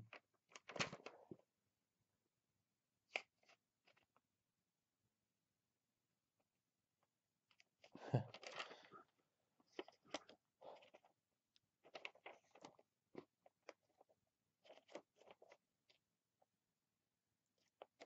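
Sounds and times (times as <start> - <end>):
paper pages rustling: 0.1 - 1.2, 11.8 - 16.0.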